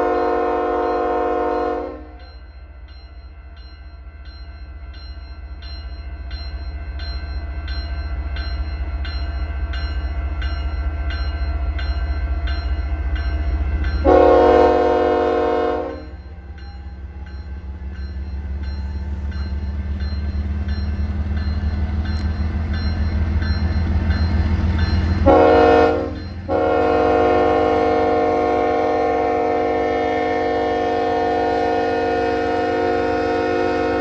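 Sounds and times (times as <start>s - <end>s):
locomotive horn blast: 0.0s - 2.2s, 14.0s - 16.2s, 25.2s - 34.0s
crossing bell ringing: 0.0s - 34.0s
diesel locomotives rumbling: 0.0s - 34.0s.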